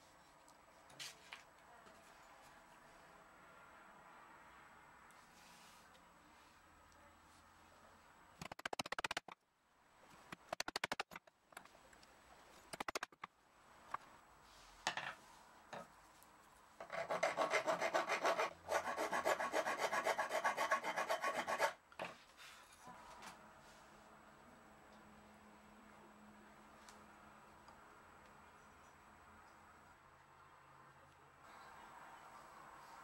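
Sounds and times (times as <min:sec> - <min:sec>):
hand file rasping on wood: 0:16.8 - 0:21.8.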